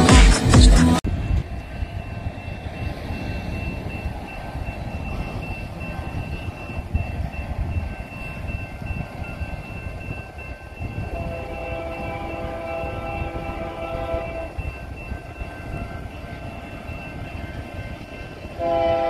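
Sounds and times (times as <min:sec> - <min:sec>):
music: 0:00.0 - 0:01.0
train rumbling: 0:00.0 - 0:19.0
wind buffeting microphone: 0:01.0 - 0:19.0
crossing warning bell ringing: 0:01.1 - 0:19.0.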